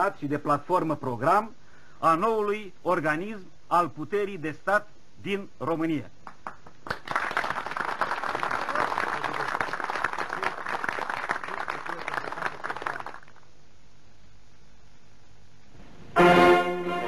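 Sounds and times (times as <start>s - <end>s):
group applauding: 6.2s - 13.4s.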